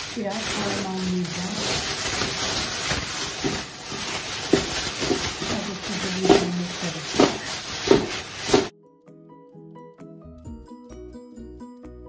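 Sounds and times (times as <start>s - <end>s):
plastic bag rustling and crinkling: 0.0s - 8.7s
soft thuds of shifting contents: 0.4s - 8.7s.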